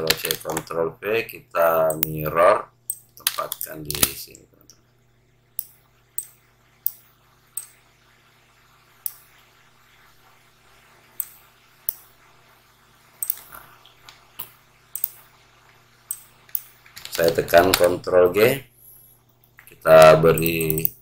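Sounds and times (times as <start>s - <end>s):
faint low hum: 0.0s - 21.0s
mouse and keyboard clicks: 1.9s - 2.2s, 13.2s - 15.2s.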